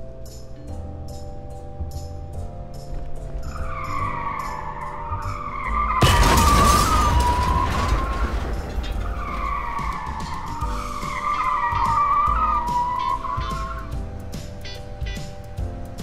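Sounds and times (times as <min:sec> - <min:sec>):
background music: 0:00.0 - 0:16.0
tyre screech effect: 0:03.6 - 0:13.9.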